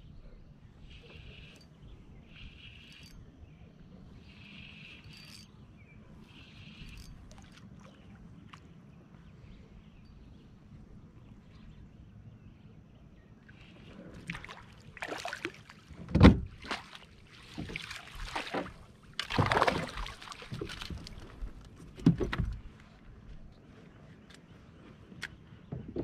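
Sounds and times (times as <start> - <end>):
water splashing: 14.1 - 15.9, 16.5 - 21.5.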